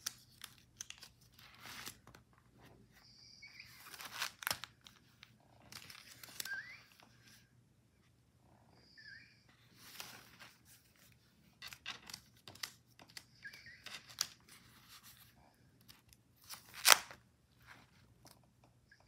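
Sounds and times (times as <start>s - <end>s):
paper pages rustling: 0.0s - 2.7s, 3.6s - 7.4s, 9.7s - 18.4s.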